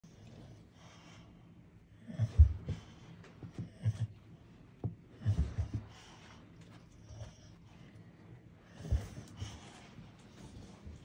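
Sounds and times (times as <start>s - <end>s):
dog breathing: 5.2s - 11.0s.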